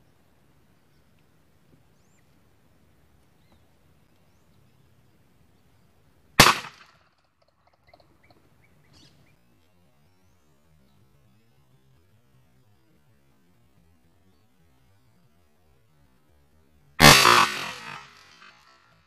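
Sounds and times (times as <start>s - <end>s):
rifle shot: 6.4s - 7.0s, 17.0s - 18.7s
faint bird chirps: 7.4s - 12.7s.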